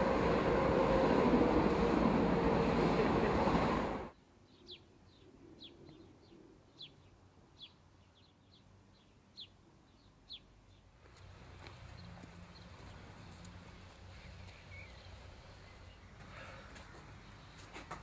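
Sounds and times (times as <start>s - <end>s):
train rushing past: 0.0s - 4.1s.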